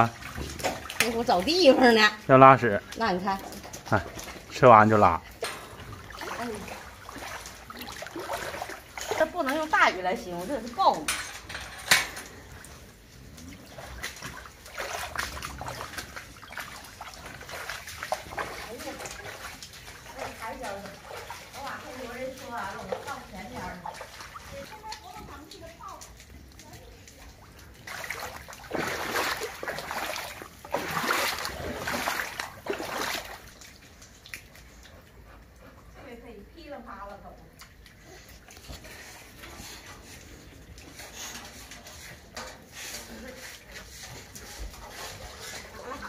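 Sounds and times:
boots splashing through water: 0.0s - 4.9s, 5.7s - 10.8s, 13.5s - 34.5s.

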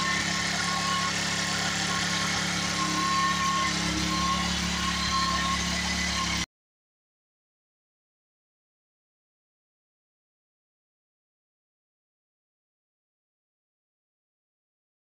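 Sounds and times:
scooter engine idling: 0.0s - 6.4s.

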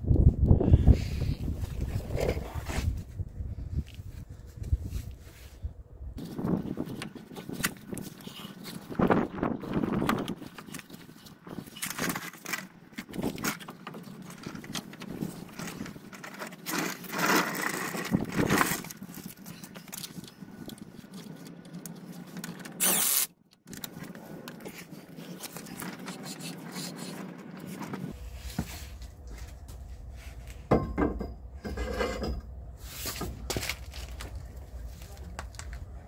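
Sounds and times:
metallic clinks and scrapes: 31.3s - 32.5s.

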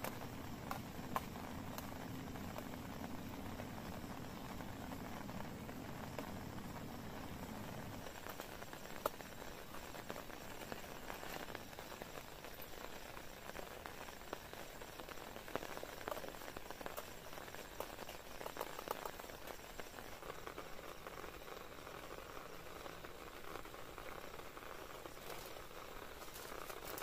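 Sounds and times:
rain pattering on a tent: 0.0s - 27.0s.

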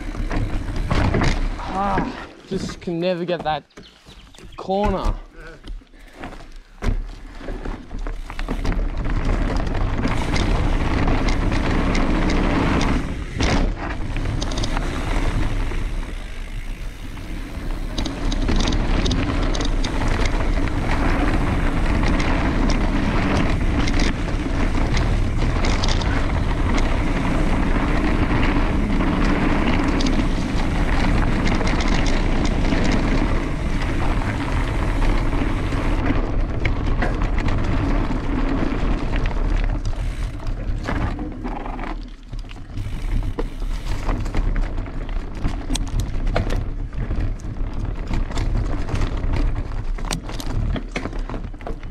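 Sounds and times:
bike knocking and rattling: 0.0s - 51.9s
bike tyre noise: 0.0s - 51.9s
wind buffeting microphone: 8.2s - 41.8s.

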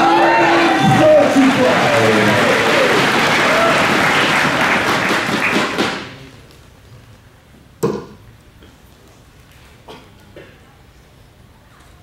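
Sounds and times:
audience applause: 0.0s - 6.3s.

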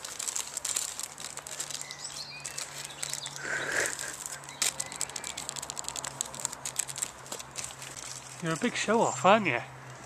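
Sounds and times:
light crackling and clicking: 0.2s - 8.6s
faint birds chirping: 1.0s - 6.2s.

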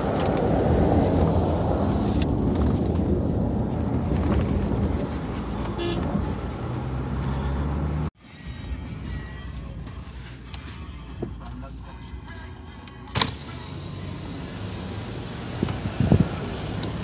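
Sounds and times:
road and engine noise: 0.0s - 17.0s
car horn toot: 5.7s - 6.2s.

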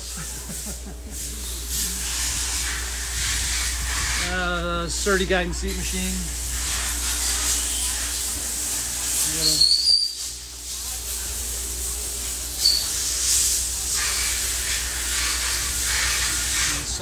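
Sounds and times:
constant hiss: 0.0s - 17.0s
short high squeaks: 9.3s - 10.4s, 12.6s - 13.1s.

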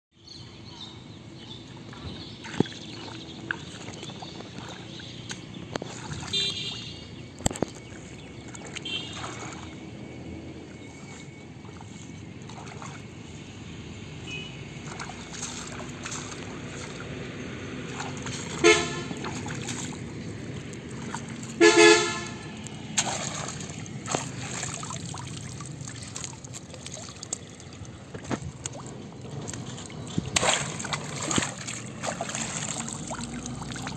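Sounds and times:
low outdoor background: 0.1s - 33.9s
vehicle horns honking: 6.1s - 7.3s, 8.8s - 9.6s, 14.2s - 14.7s, 18.3s - 20.0s, 21.5s - 22.7s.

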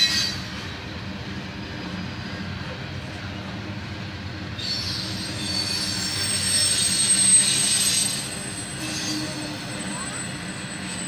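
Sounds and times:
train wheels squealing: 0.0s - 1.0s, 4.3s - 11.0s
low rumble of train cars: 0.0s - 11.0s.

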